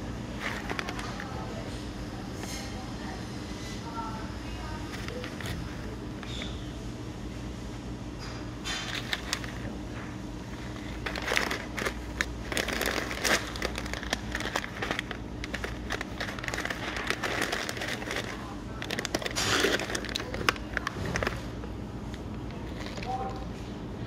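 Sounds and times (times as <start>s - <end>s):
steady low hum: 0.0s - 24.0s
plastic snack bags crinkling: 0.3s - 1.7s, 4.8s - 6.5s, 8.7s - 23.5s.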